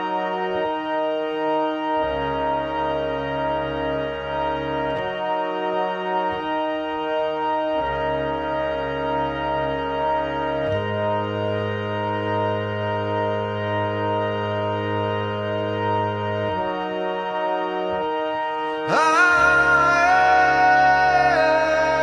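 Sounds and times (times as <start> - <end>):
slow organ chords: 0.0 - 22.0.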